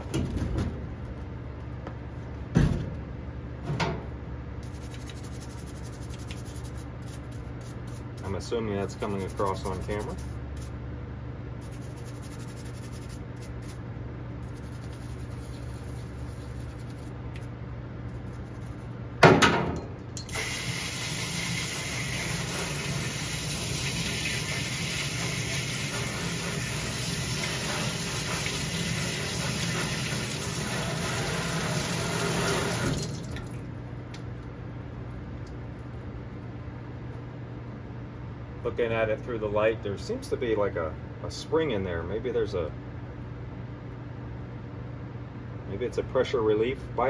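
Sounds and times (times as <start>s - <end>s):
faucet running into steel sink: 20.3s - 33.2s.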